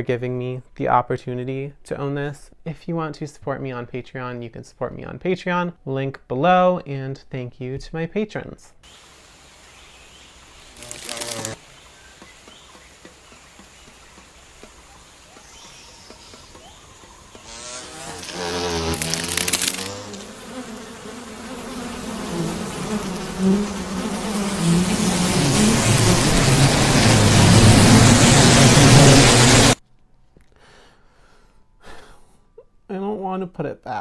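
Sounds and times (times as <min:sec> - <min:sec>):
flying insect buzzing: 0:08.9 - 0:29.8.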